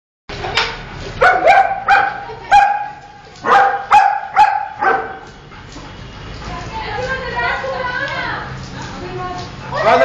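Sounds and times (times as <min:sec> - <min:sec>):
dog barking: 0:01.2 - 0:05.2.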